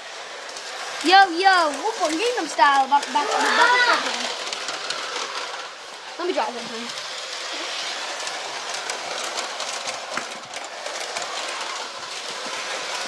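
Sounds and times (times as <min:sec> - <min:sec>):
toy train motor whir: 0:00.0 - 0:13.0
wheels clicking over track: 0:00.0 - 0:13.0.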